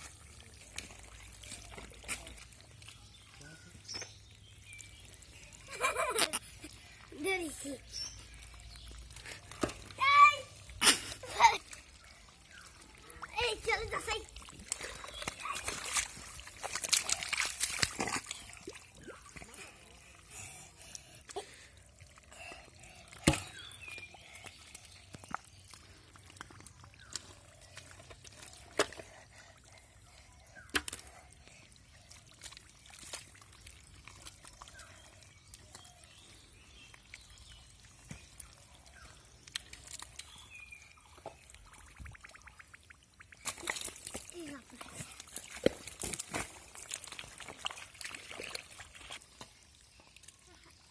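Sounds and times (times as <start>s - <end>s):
hands squelching in wet mud: 0.0s - 50.9s
trickling water: 0.0s - 50.9s
sharp slaps in mud: 23.2s - 23.7s, 30.7s - 31.1s.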